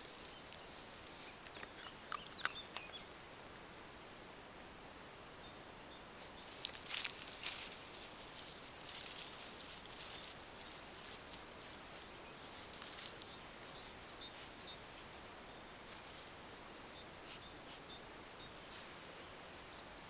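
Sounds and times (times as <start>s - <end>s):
rustling in dry leaves: 0.0s - 2.2s, 6.1s - 20.0s.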